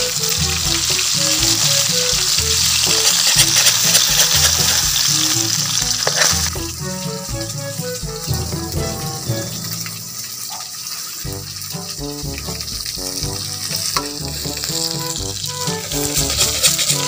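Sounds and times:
background music: 0:00.0 - 0:17.0
food sizzling in hot oil: 0:00.0 - 0:17.0
metal ladle stirring in wok: 0:02.8 - 0:06.6.

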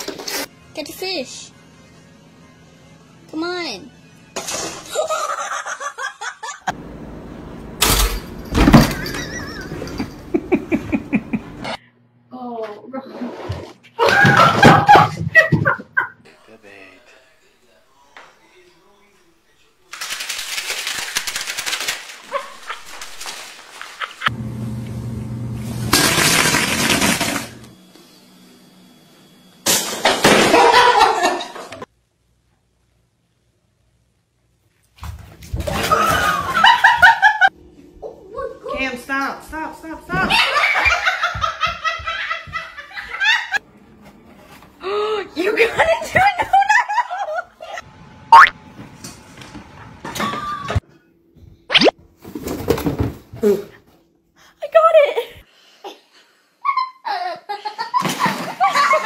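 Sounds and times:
people laughing: 0:04.9 - 0:06.7, 0:09.0 - 0:11.8, 0:23.8 - 0:24.3, 0:30.5 - 0:31.8, 0:35.8 - 0:37.5, 0:40.2 - 0:43.6, 0:45.6 - 0:47.8, 0:56.6 - 0:59.0
toaster popping up with clang: 0:07.8 - 0:09.2.

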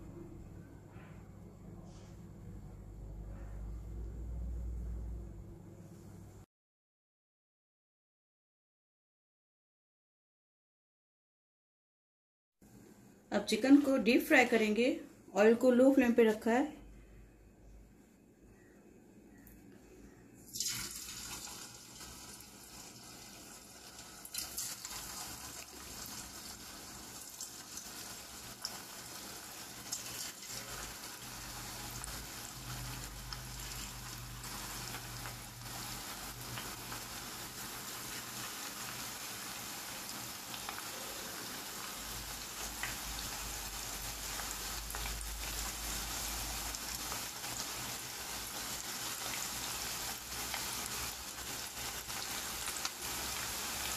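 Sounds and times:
chicken sizzling in hot oil: 0:20.5 - 0:53.9.

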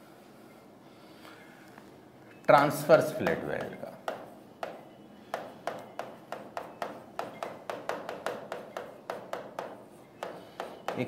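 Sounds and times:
pen tapping on glass: 0:05.4 - 0:11.0.

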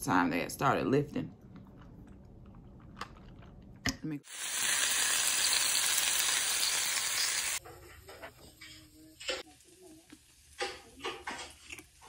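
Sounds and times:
food sizzling: 0:04.2 - 0:07.6.

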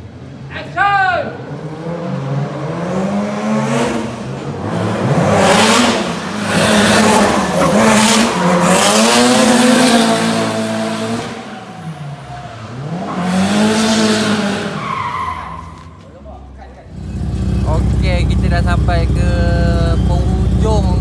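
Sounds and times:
sports car engine revving: 0:01.4 - 0:16.0, 0:16.8 - 0:21.0
tyres squealing: 0:06.4 - 0:18.3.

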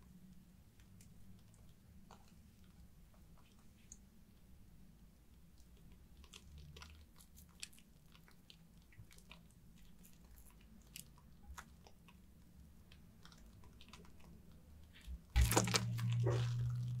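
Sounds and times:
soap lather crackling: 0:05.6 - 0:17.0
steady low hum: 0:15.0 - 0:17.0.

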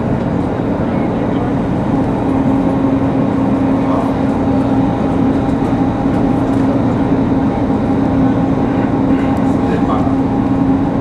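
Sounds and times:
bus engine humming: 0:00.0 - 0:11.0
road noise: 0:00.0 - 0:11.0.

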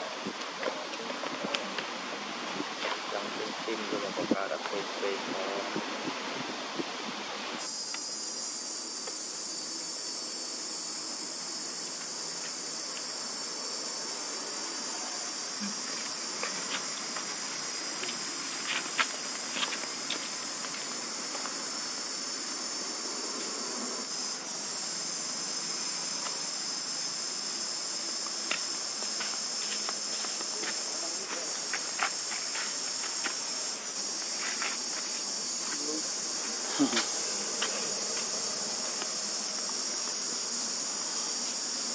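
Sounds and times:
insects shrilling: 0:00.0 - 0:41.9.

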